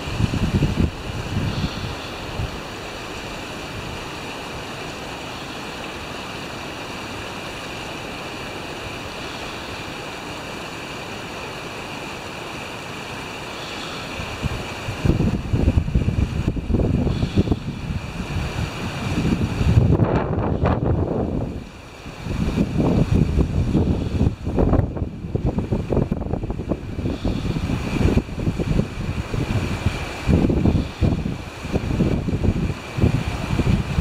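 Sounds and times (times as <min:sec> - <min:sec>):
wind rumbling on microphone: 0:00.0 - 0:05.6, 0:13.6 - 0:34.0
rippling water: 0:00.0 - 0:34.0.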